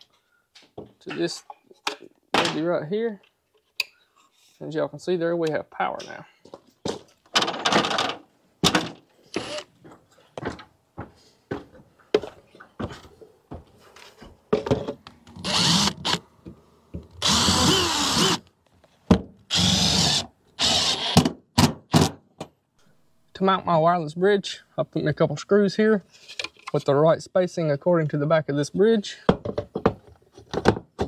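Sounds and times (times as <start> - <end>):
power drill driving screws: 9.3 - 9.7, 15.4 - 16.2, 17.2 - 18.4, 19.5 - 21.3.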